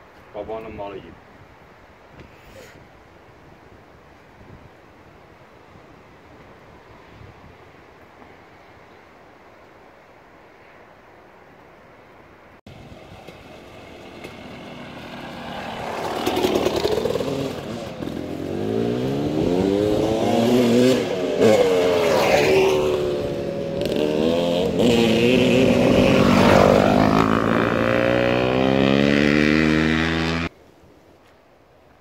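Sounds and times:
dirt bike engine revving: 14.1 - 30.5.

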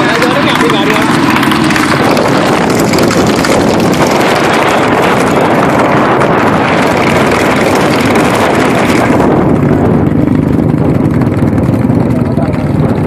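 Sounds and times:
road noise: 0.0 - 13.0
vehicle engine: 0.0 - 13.0
wind buffeting microphone: 0.0 - 13.0.

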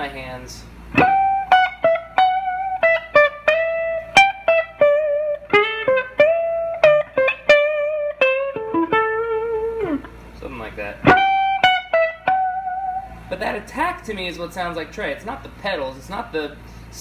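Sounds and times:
electric guitar lead lick: 0.9 - 10.3, 11.0 - 13.3.

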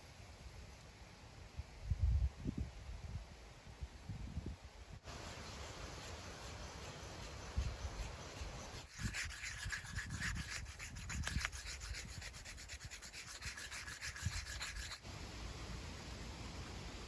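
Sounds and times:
antler scraping on whetstone: 6.9 - 15.0.

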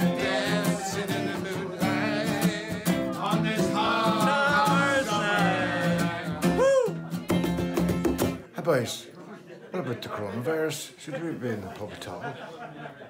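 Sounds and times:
man singing: 0.0 - 7.0
strummed acoustic guitar: 0.0 - 8.5.

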